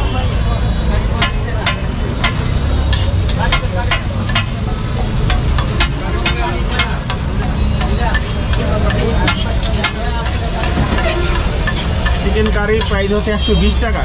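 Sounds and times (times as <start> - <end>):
food sizzling in oil: 0.2 - 14.0
metal spatula scraping griddle: 2.2 - 4.5, 5.3 - 13.2.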